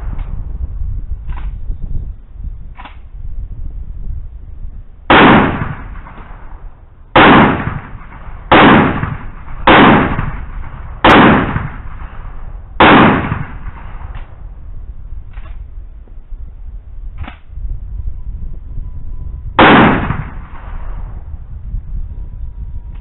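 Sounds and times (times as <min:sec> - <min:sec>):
shotgun blasts: 0:05.1 - 0:14.4, 0:19.6 - 0:21.3.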